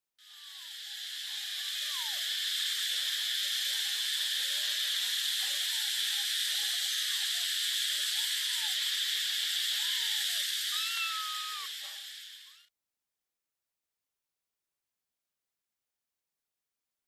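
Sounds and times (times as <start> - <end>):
faint short calls: 0.2 - 12.7
insects calling: 0.2 - 12.7.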